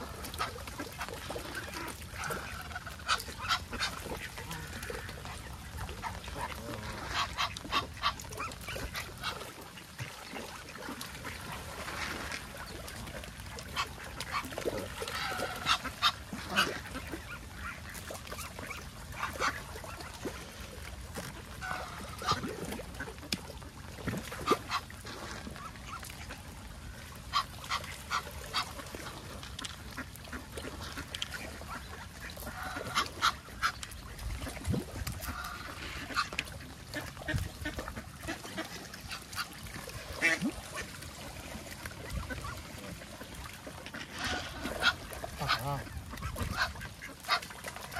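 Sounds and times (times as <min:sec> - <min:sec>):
ducks quacking: 0:00.0 - 0:26.4, 0:27.2 - 0:47.9
geese honking: 0:15.0 - 0:17.3, 0:21.6 - 0:22.4, 0:43.9 - 0:47.4.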